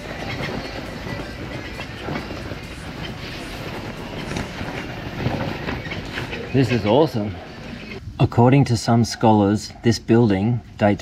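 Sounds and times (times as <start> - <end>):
bicycle rattling over cobblestones: 0.0 - 8.0.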